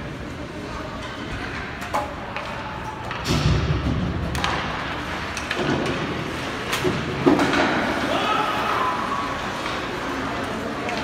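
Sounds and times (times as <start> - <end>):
knocks and thuds against rink boards: 2.3 - 8.0.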